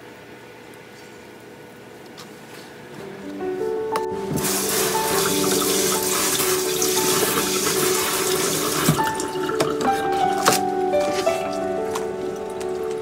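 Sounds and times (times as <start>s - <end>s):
soft background music: 3.0s - 13.0s
tap water splashing in sink: 4.3s - 10.6s.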